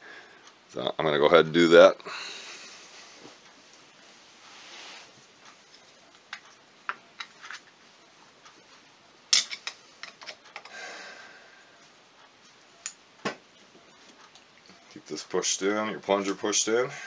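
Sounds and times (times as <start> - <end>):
soft rustle: 2.6 - 6.6.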